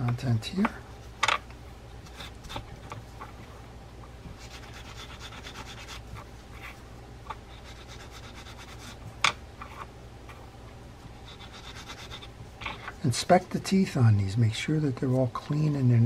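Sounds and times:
steel wool scrubbing metal: 4.4s - 6.2s.

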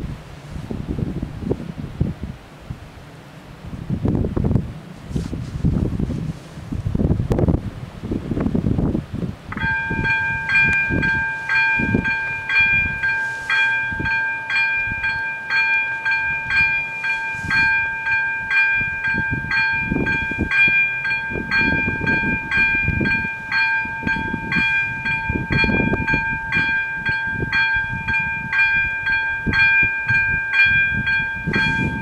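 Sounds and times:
wind gusts on microphone: 0.0s - 32.0s
level crossing warning bells: 9.5s - 32.0s.

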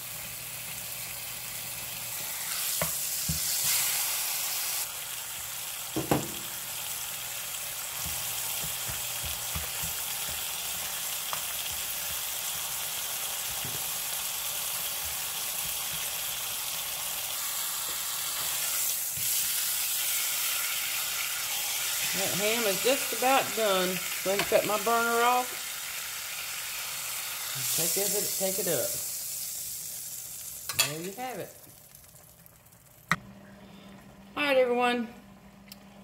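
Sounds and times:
ham sizzling in frying pan: 0.0s - 33.2s.

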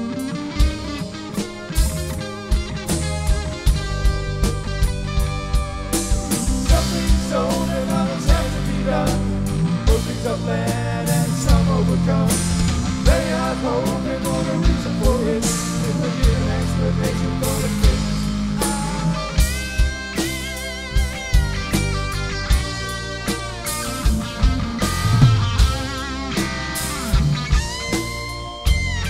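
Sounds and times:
bass line: 0.0s - 29.0s
drum kit beat: 0.0s - 29.0s
rock band playing: 0.0s - 29.0s
wavering lead melody: 18.3s - 29.0s.

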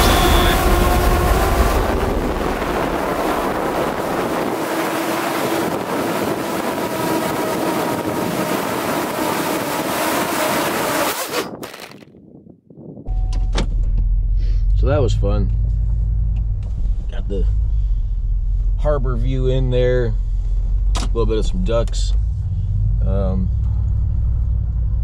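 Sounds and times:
car interior rumble: 0.0s - 7.5s, 13.0s - 25.0s
drone propellers whirring: 0.0s - 12.0s
wind rushing: 0.0s - 13.1s.

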